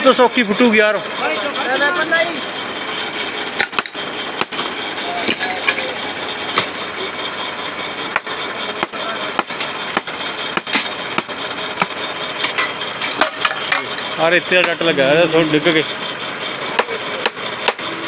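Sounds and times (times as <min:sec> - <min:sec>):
machine engine running: 0:00.0 - 0:18.0
sharp repeating knocks: 0:03.6 - 0:06.9, 0:08.1 - 0:13.7, 0:16.7 - 0:17.9.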